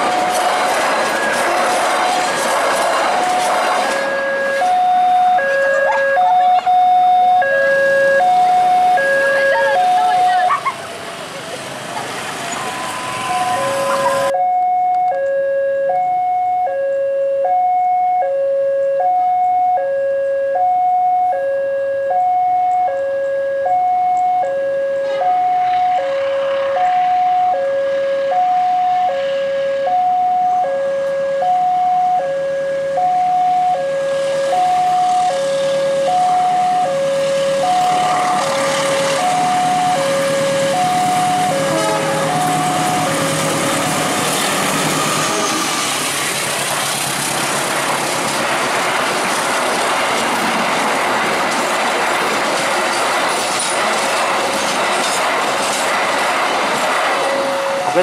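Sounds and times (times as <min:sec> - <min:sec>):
wheels clattering over rails: 0:00.0 - 0:06.7, 0:36.4 - 0:58.0
two-tone crossing warning alarm: 0:00.0 - 0:10.8, 0:12.3 - 0:46.5, 0:51.4 - 0:58.0
train coaches rushing past: 0:00.0 - 0:14.3, 0:25.0 - 0:30.6, 0:33.0 - 0:58.0.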